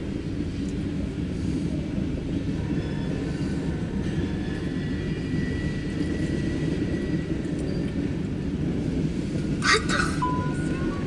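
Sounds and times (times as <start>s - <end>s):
train wheels rumbling on rail: 0.0s - 11.0s.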